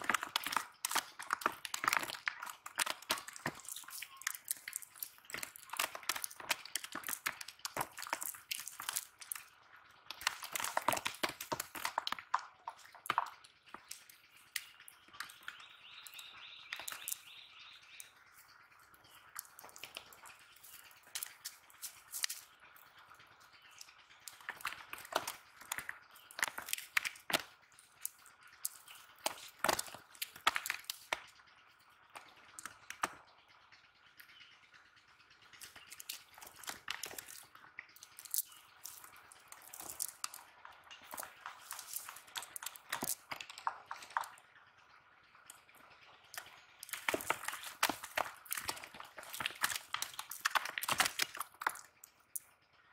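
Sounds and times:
net rustling and crackling: 46.8s - 51.9s.

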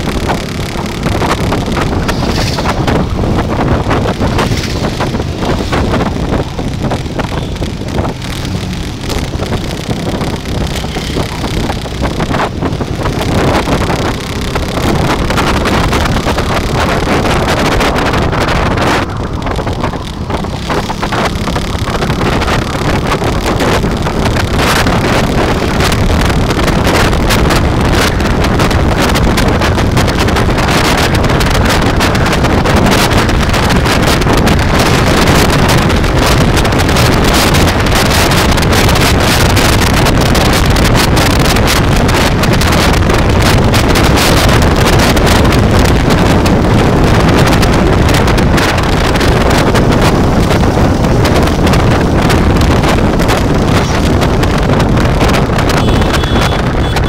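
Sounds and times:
motorcycle engine running: 0.0s - 57.0s
wind buffeting microphone: 0.0s - 57.0s.

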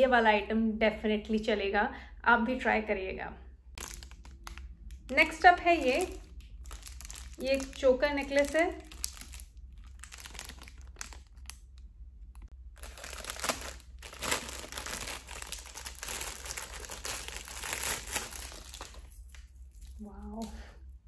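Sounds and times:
plastic bag crinkling: 3.8s - 20.5s.

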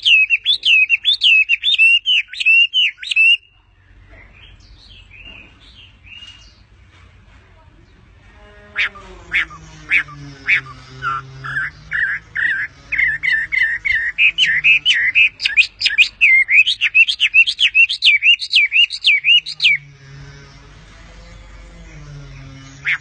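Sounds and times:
bird singing whistled notes: 0.0s - 3.5s, 8.8s - 19.9s.

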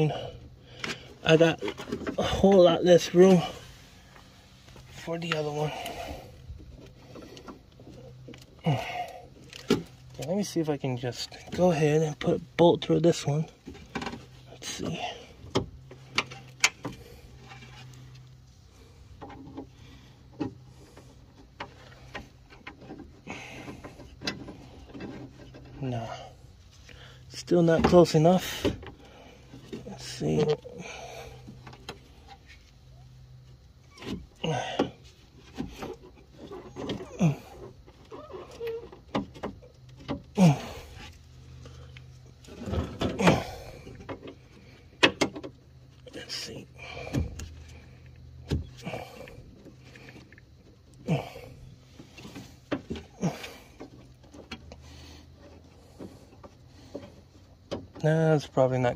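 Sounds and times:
faint steady hum: 0.0s - 58.9s
scraping rustle: 15.9s - 27.0s.

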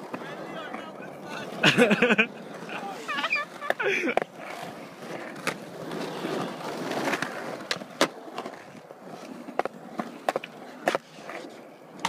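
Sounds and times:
skateboard clacks: 0.0s - 12.0s
skateboard wheels rolling on concrete: 0.0s - 12.0s.

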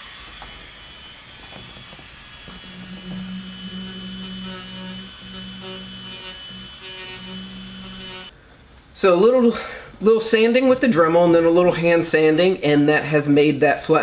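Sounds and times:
rotary tool high whine: 0.0s - 8.3s
low sanding hum: 0.0s - 8.4s.

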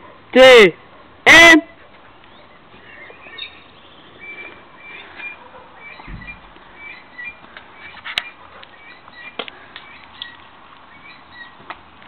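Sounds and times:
small birds chirping: 1.9s - 12.0s
dull low thump: 6.0s - 6.7s.

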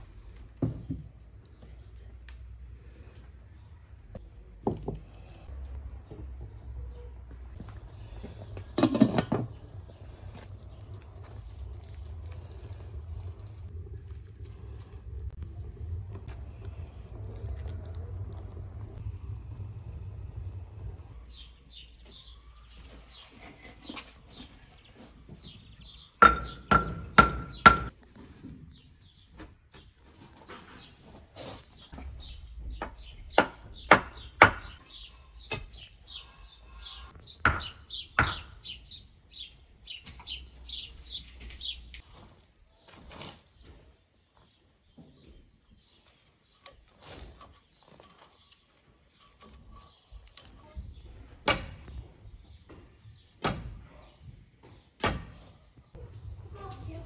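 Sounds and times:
scraping: 7.5s - 21.4s
knocks from yard work: 8.2s - 10.4s.

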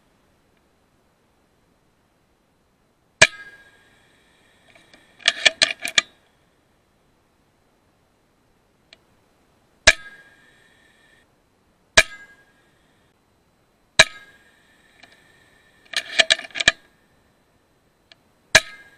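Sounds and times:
air rifle shots with metallic ring: 3.2s - 3.8s, 9.9s - 10.4s, 12.0s - 12.5s, 14.0s - 14.4s, 18.5s - 18.9s
sharp metallic clicks: 3.2s - 6.2s, 9.9s - 10.7s, 14.0s - 17.0s.

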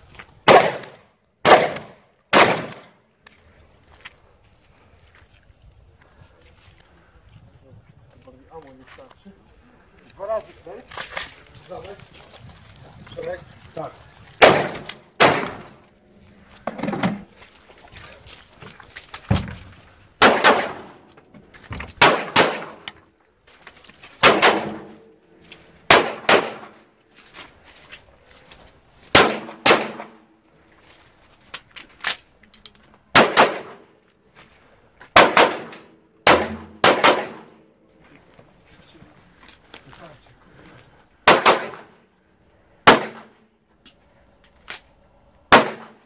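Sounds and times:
handgun shots: 0.5s - 2.9s, 14.4s - 15.8s, 20.2s - 21.0s, 22.0s - 22.9s, 24.2s - 25.0s, 25.9s - 26.8s, 29.2s - 30.2s, 33.2s - 33.8s, 35.2s - 37.5s, 41.3s - 41.9s.

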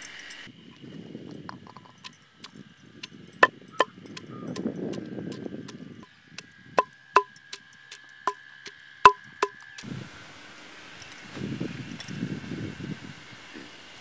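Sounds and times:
pestle grinding in stone mortar: 3.0s - 5.8s, 6.4s - 9.9s
sharp knocks: 9.1s - 9.8s.

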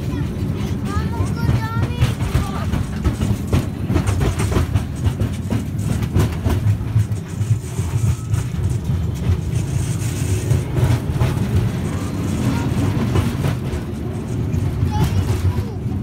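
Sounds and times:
train rumbling: 0.0s - 16.0s
carriage rattles and knocks: 0.8s - 7.7s.

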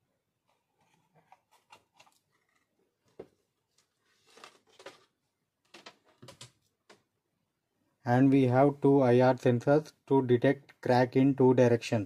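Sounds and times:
clicks and rustles of wires: 0.4s - 7.1s.

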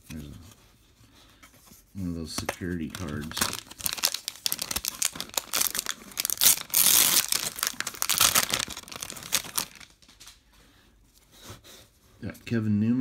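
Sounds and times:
plastic wrapper crinkling and tearing: 2.3s - 10.4s.

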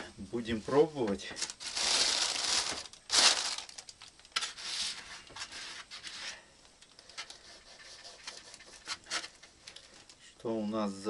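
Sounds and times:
plastic bag rustling: 0.9s - 6.4s.

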